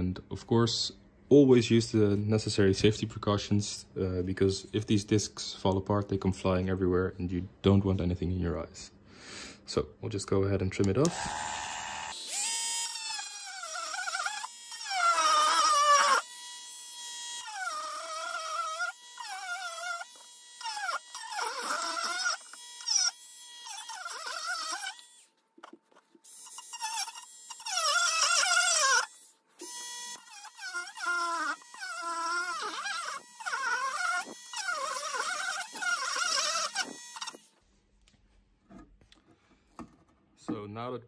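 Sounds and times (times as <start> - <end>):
rotary tool grinding plastic: 11.1 - 37.6.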